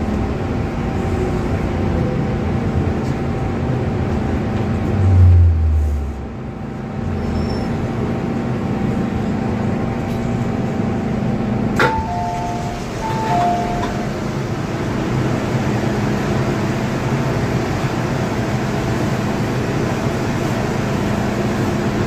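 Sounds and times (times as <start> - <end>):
train equipment humming: 0.0 - 22.0
train low rumble: 0.0 - 22.0
two-note door chime: 11.8 - 14.2.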